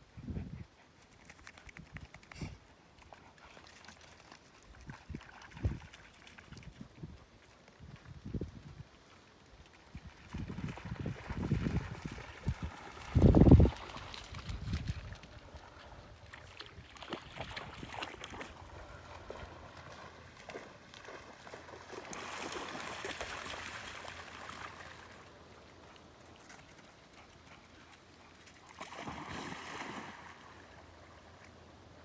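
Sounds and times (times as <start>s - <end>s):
dogs splashing in water: 10.2s - 25.2s, 27.4s - 30.7s.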